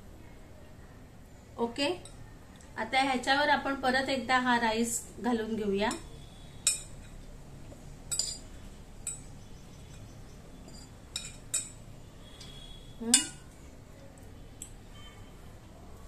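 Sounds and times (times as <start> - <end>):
glass bowl clinking on pot: 6.6 - 7.2, 8.1 - 9.2, 10.7 - 11.8.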